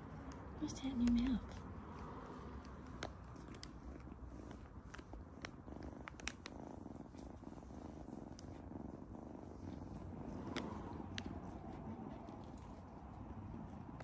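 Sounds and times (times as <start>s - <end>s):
kitten purring: 0.0s - 14.0s.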